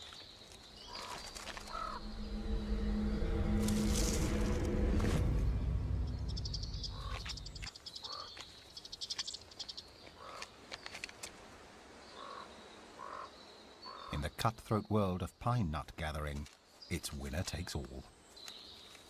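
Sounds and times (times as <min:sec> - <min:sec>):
harsh animal calls: 0:00.9 - 0:03.9, 0:06.6 - 0:08.3
low rumble: 0:01.6 - 0:07.7.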